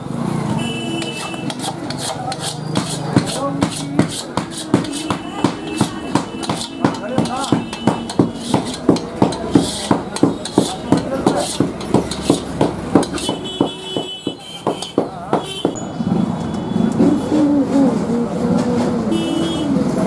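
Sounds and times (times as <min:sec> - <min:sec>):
rhythmic hammer blows: 0:01.0 - 0:15.8.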